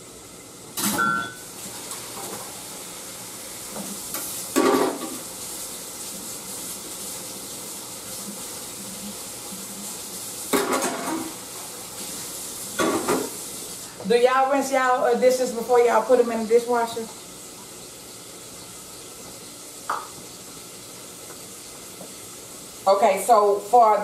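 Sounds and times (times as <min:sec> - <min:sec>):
bacon sizzling in a pan: 0:00.0 - 0:24.0
dishes clattering: 0:04.5 - 0:05.2, 0:10.5 - 0:11.4, 0:12.8 - 0:13.4.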